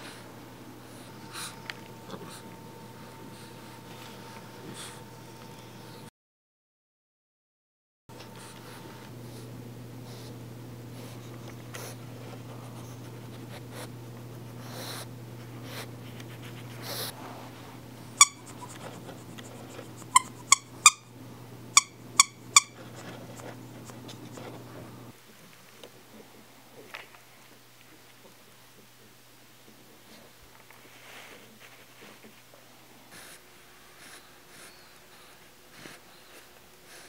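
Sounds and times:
steady low hum: 0.0s - 6.1s, 8.1s - 25.3s
soft rustling: 15.4s - 18.0s, 30.1s - 32.7s
dog toy squeaker squeaks: 18.2s - 18.8s, 19.9s - 21.1s, 21.8s - 22.8s.

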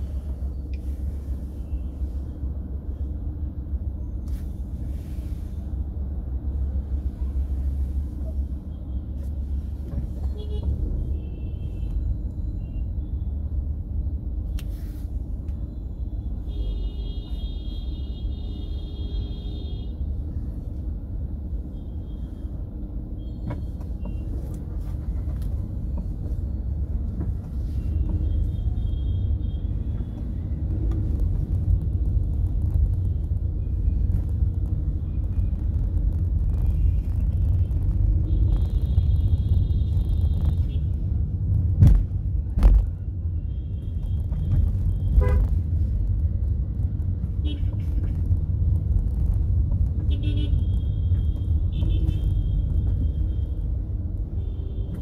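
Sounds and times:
road traffic rumble: 0.0s - 55.0s
vehicle horns honking: 45.1s - 45.5s.

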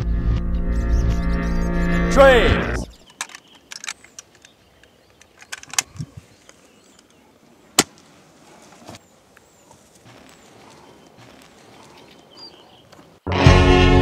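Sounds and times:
faint outdoor background: 0.0s - 14.0s
sharp clicks: 3.0s - 7.2s.

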